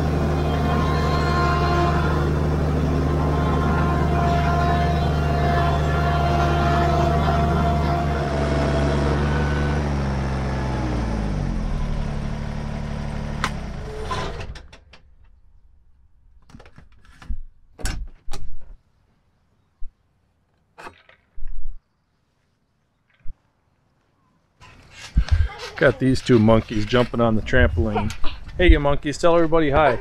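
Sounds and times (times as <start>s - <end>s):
tractor diesel engine running: 0.0s - 16.5s.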